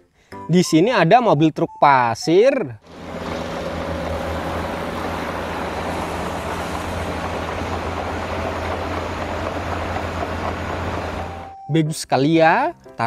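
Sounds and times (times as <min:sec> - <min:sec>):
diesel engine humming: 0:02.8 - 0:11.7
steady hiss: 0:03.0 - 0:11.3.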